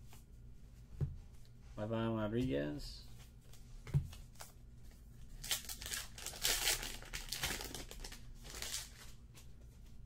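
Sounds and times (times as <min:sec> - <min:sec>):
foil wrapper crinkling: 0:05.4 - 0:09.2.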